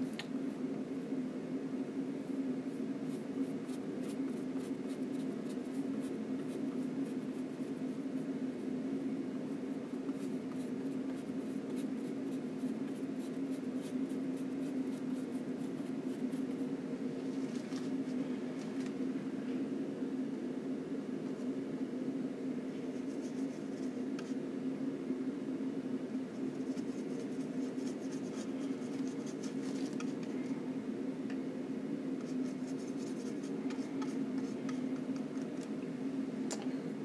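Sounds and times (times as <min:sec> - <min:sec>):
steady low hum: 0:00.0 - 0:37.0
brush strokes on canvas: 0:22.8 - 0:24.4, 0:26.5 - 0:30.4, 0:32.2 - 0:35.5.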